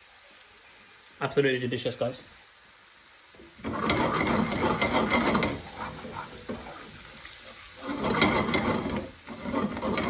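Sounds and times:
curry sizzling in a pan: 0.0s - 10.0s
spoon scraping a pan: 3.6s - 10.0s.

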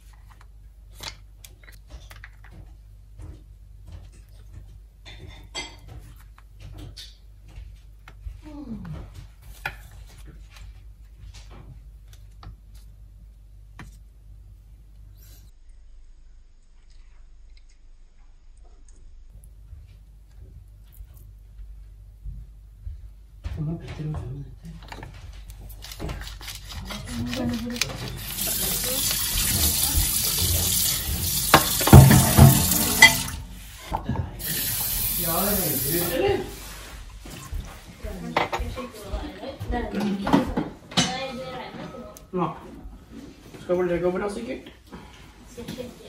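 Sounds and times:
pepper mill grinding: 25.7s - 33.4s, 34.4s - 36.2s
sharp knocks: 31.2s - 33.6s.

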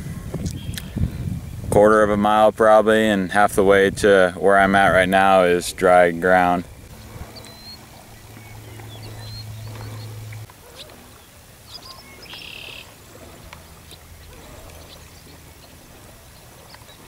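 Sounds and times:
low steady hum: 0.0s - 17.0s
buzzy bird call: 6.8s - 17.0s
bird chirps and whistles: 8.4s - 10.1s.

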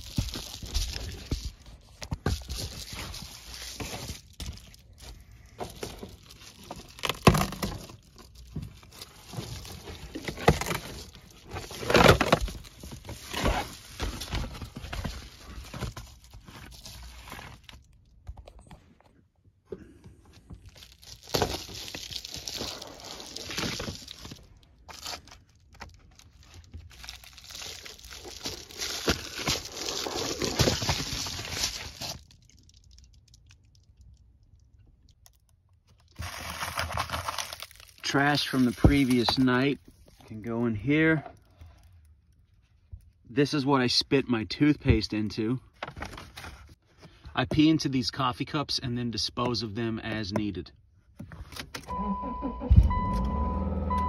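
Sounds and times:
plastic and foil crinkling: 0.0s - 18.6s, 20.4s - 34.2s, 35.9s - 40.6s.

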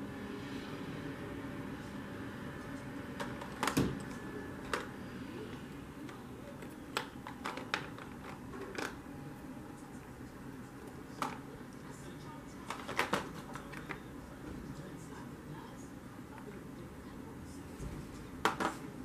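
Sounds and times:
low room hum: 0.0s - 19.0s
makeup containers clicking: 6.9s - 9.0s.

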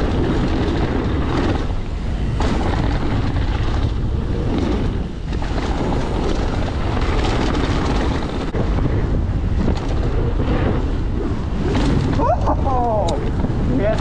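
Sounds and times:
bike knocking over bumps: 0.0s - 8.5s
bike tyres rumbling on dirt: 0.0s - 14.0s
wind on microphone: 0.0s - 14.0s.

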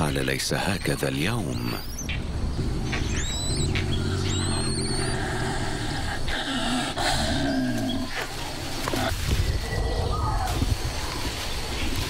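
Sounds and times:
leopard growling low: 2.6s - 10.5s.

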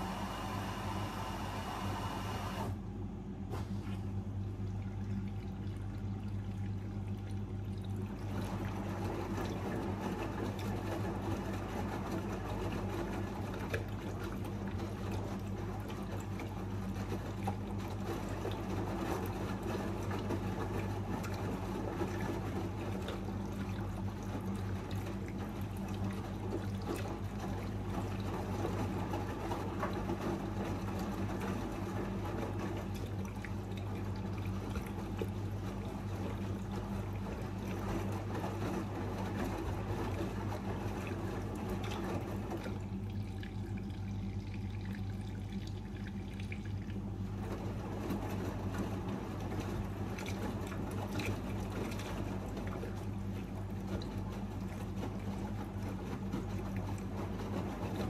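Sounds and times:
water pouring into washing machine: 0.0s - 2.8s, 3.5s - 58.0s
steady low hum: 40.5s - 57.8s.

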